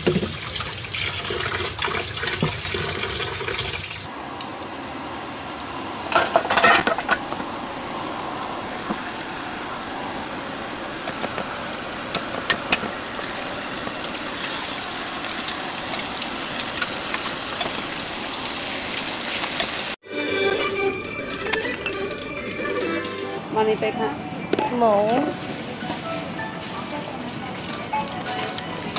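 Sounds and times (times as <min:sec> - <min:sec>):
dishes and utensils clinking: 0:06.1 - 0:07.3
pan of liquid hissing: 0:10.1 - 0:20.0.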